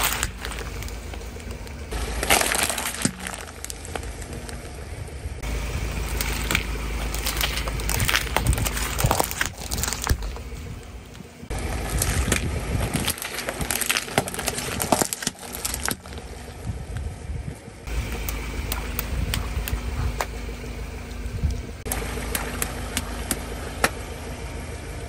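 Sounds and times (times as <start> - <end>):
tyre crushing plastic cups: 0.0 - 4.6, 5.5 - 10.5, 11.5 - 16.5.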